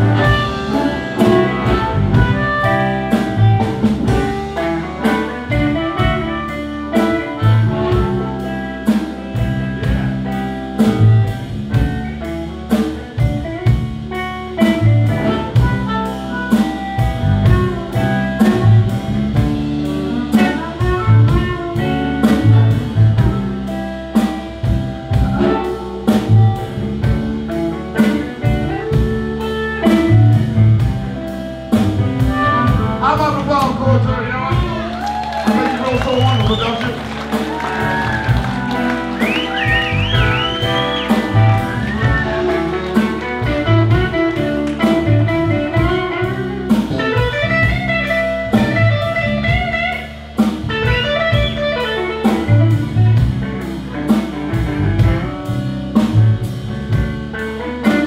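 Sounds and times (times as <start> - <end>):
bass: 0.0 - 58.0
drums steady beat: 0.0 - 58.0
electric guitar: 0.0 - 58.0
harmonica: 39.1 - 44.1.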